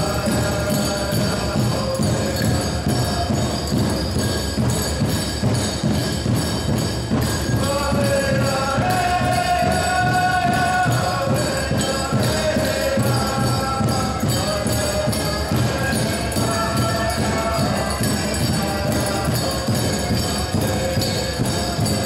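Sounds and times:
bells jingling: 0.0 - 22.0
steady drum beat: 0.0 - 22.0
voices singing long notes: 7.5 - 22.0.

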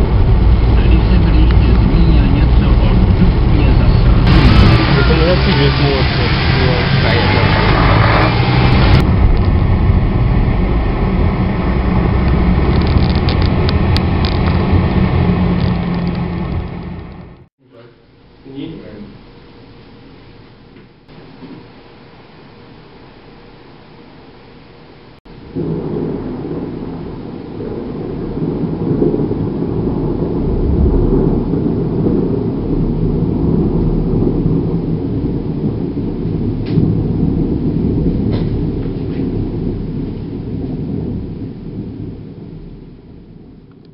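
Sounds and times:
car driving on wet road: 0.0 - 17.5
rolling thunder: 0.0 - 17.5, 25.3 - 43.9
loud hiss: 3.6 - 9.0.

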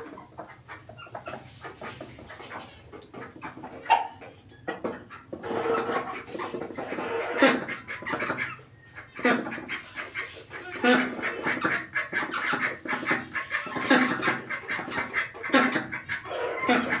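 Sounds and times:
ducks quacking: 0.0 - 17.0
hens clucking: 0.0 - 17.0.

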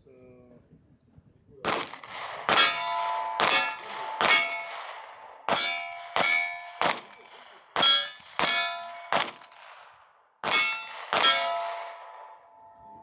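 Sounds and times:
gunshots ringing on steel targets: 1.6 - 13.0.

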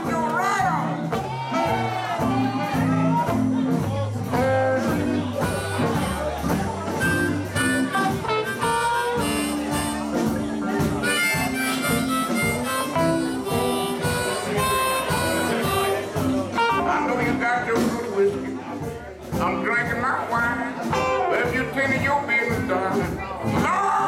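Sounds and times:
live blues band: 0.0 - 24.0
blues harmonica: 4.3 - 17.7.

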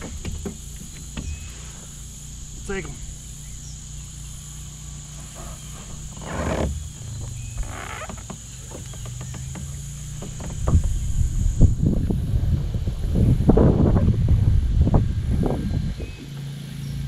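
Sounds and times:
knocks and rumbling in kayak: 0.0 - 1.7, 4.9 - 16.5
high-pitched insect drone: 0.0 - 13.6
rustles and clicks: 4.8 - 12.2.

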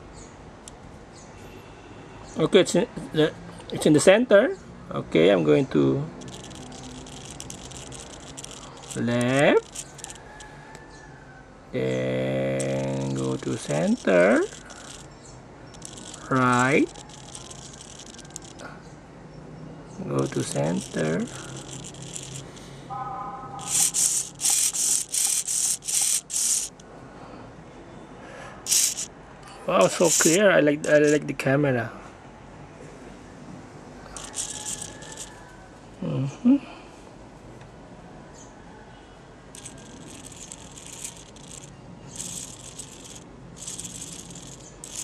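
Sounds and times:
servo motor whirring: 6.2 - 10.3, 12.6 - 18.7, 20.1 - 22.7, 23.6 - 26.8, 28.7 - 29.1, 29.8 - 31.2, 34.2 - 35.4, 39.6 - 45.0
steady motor whine: 23.6 - 26.8.

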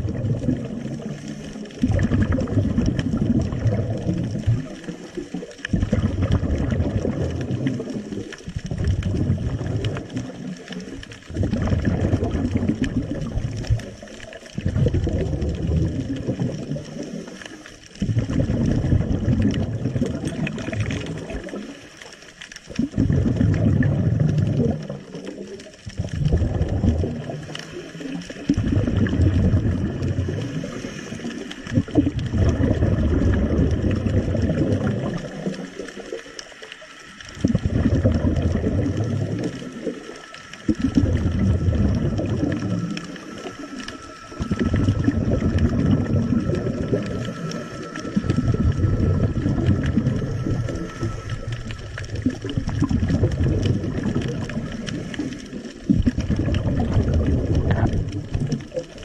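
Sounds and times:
underwater exhaust bubbles: 0.0 - 59.0.

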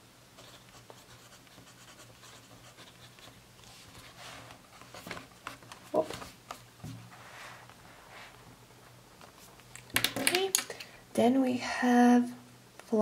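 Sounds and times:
pencil scratching on paper: 0.4 - 4.3
paper rustling: 2.8 - 7.8.

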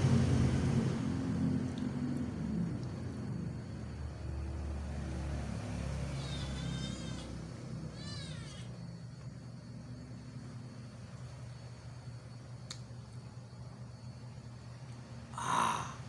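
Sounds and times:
low background hum: 0.0 - 16.0
cat meowing: 6.1 - 8.8.

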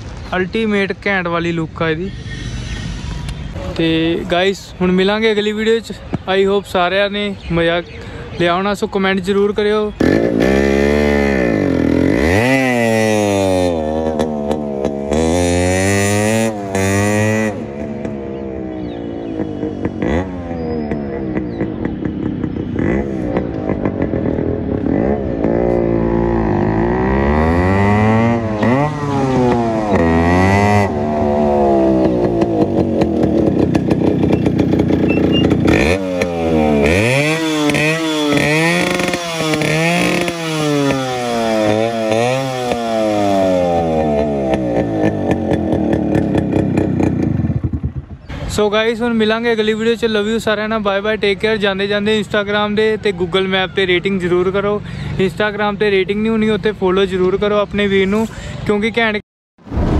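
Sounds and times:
motorcycle engine revving: 0.0 - 6.2, 9.3 - 48.6.

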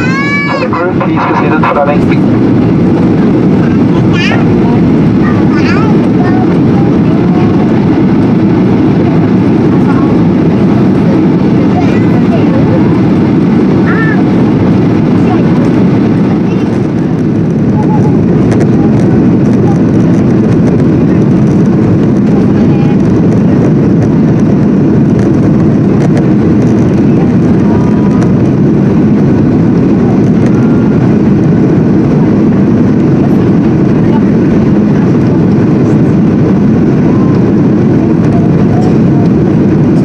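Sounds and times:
airplane cabin engine roar: 0.0 - 40.0.

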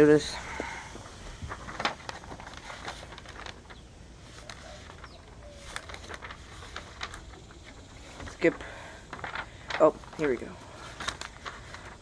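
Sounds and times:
dictionary pages rustling: 0.0 - 12.0
faint bird call: 3.7 - 6.2.

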